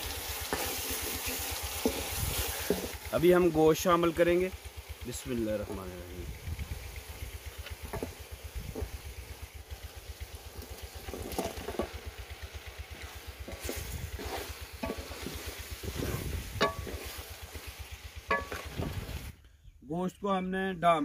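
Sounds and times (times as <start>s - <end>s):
meat sizzling in a pot: 0.0s - 19.3s
wooden spatula scraping a pot: 0.4s - 3.1s, 7.7s - 9.2s, 10.6s - 12.1s, 12.8s - 19.3s.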